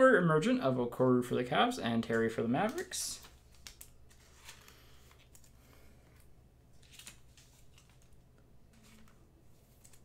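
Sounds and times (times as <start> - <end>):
trading cards rustling: 2.0 - 10.0.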